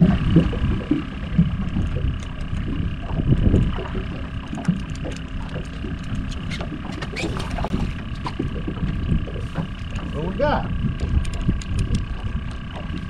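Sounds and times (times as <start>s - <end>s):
wind buffeting microphone: 0.0s - 13.0s
faint clicks: 1.7s - 2.8s, 4.5s - 6.7s.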